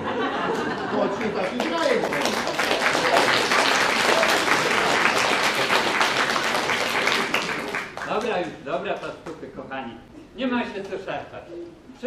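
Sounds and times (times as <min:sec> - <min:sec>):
audience applauding: 0:01.1 - 0:08.4.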